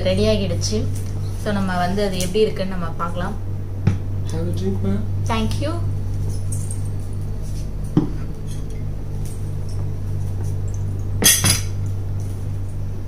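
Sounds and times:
low hum: 0.0s - 13.0s
plate and cutlery clattering: 11.2s - 11.7s
wine glass set on table: 11.2s - 11.8s.

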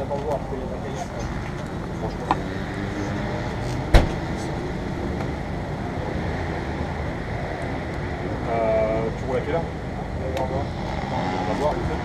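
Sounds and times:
steady background noise: 0.0s - 12.0s
sharp knock: 3.9s - 4.2s.

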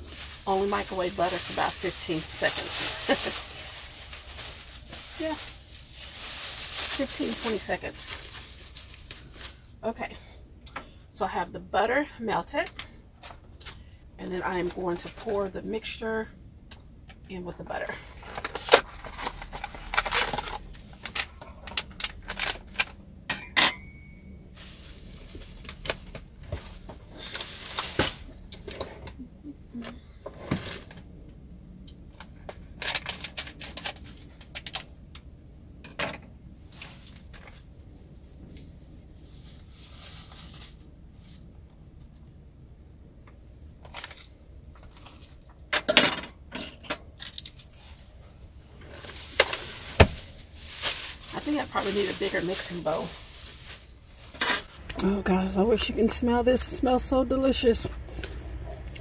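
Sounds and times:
paper rustling: 0.0s - 5.4s
paper bag rustling: 0.0s - 9.8s, 24.3s - 28.5s, 47.6s - 57.9s
kitchenware clatter: 23.3s - 24.2s
sharp ringing clink: 23.3s - 24.4s.

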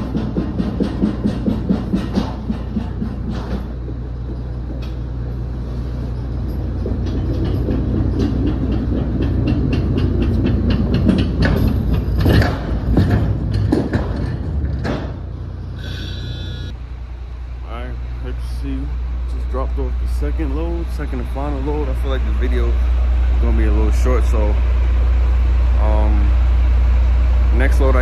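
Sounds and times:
pallet jack wheels clattering: 0.0s - 15.6s
steady low drone: 0.0s - 28.0s.

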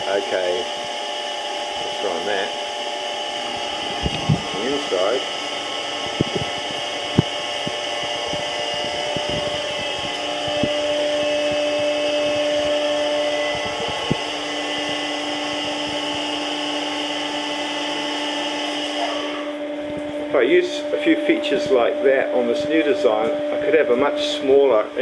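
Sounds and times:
milling machine whine: 0.0s - 25.0s
steady machine tone: 0.0s - 25.0s.

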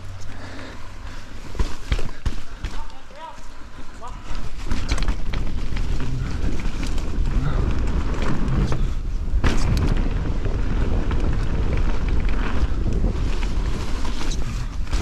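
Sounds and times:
bike rattling: 0.0s - 15.0s
tyres rumbling on dirt: 4.3s - 15.0s
wind buffeting microphone: 4.8s - 15.0s.

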